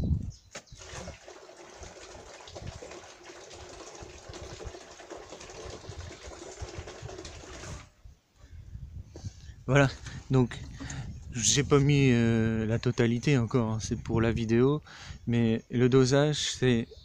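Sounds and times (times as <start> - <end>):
water pouring into a plastic barrel: 0.5 - 8.0.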